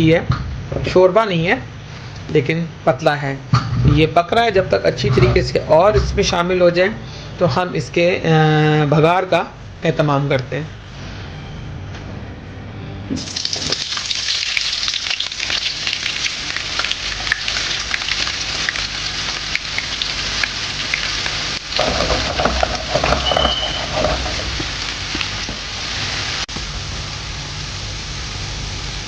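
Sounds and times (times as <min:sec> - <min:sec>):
onions sizzling in hot oil: 0:13.2 - 0:29.0.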